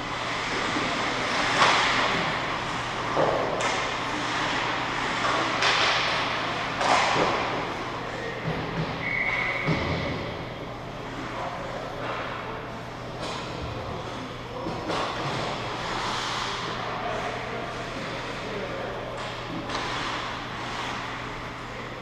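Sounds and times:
pucks and sticks hitting boards: 0.3s - 10.4s, 13.1s - 16.9s, 19.1s - 21.7s
skates on ice: 15.0s - 16.8s.

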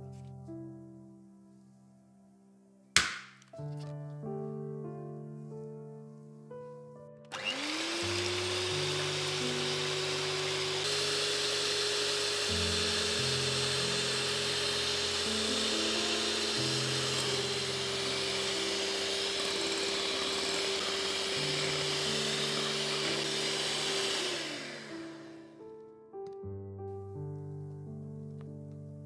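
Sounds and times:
background music: 0.0s - 29.0s
electric hand mixer whine: 7.3s - 25.6s.

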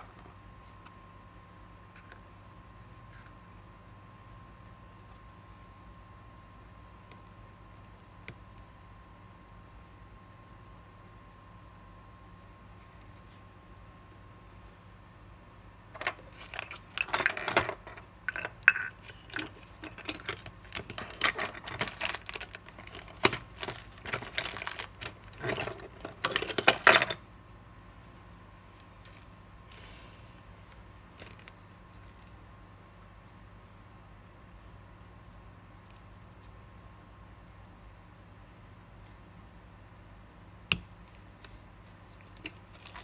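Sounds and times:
small objects clattering and crinkling: 16.0s - 27.2s, 29.0s - 32.3s, 42.0s - 43.0s.

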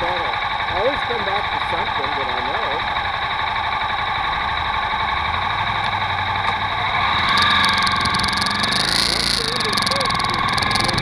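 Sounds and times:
motorcycle engine revving: 0.0s - 11.0s
motorcycle engines idling: 0.0s - 11.0s.

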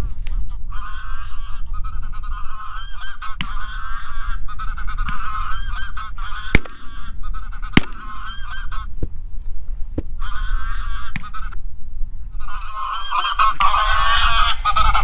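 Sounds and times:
geese honking: 0.7s - 8.9s, 12.4s - 15.0s
sharp bangs: 6.6s - 7.2s, 7.8s - 8.6s.

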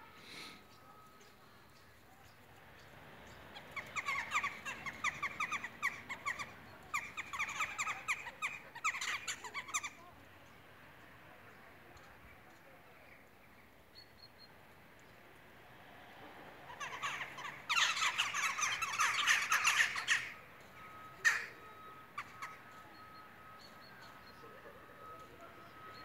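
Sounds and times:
crows cawing: 16.7s - 20.4s, 21.2s - 21.5s.

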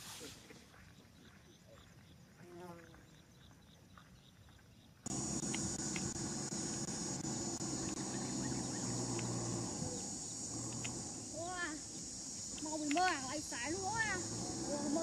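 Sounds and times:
insects chirring: 0.7s - 15.0s
low steady hum: 5.1s - 15.0s
faint clicks: 10.6s - 11.0s.

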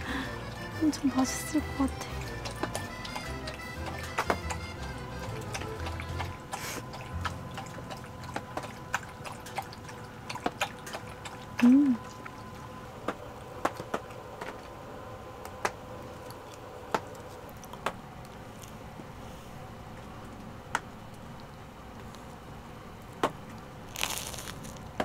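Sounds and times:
rain dripping on tent: 0.0s - 9.7s.

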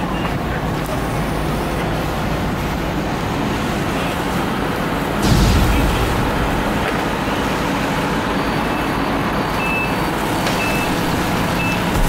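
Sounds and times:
steady rumbling: 2.4s - 9.5s.

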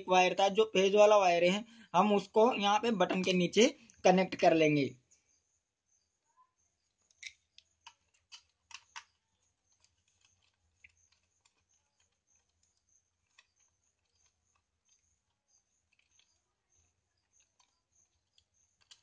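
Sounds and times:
fingers clicking on switch terminals: 17.2s - 19.0s.

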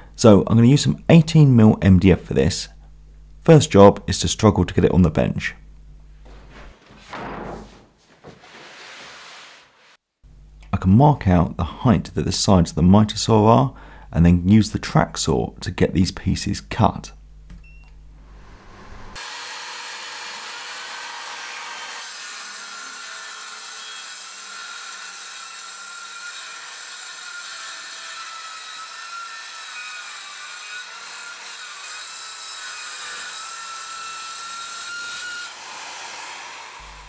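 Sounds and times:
track saw cutting wood: 18.4s - 37.0s.

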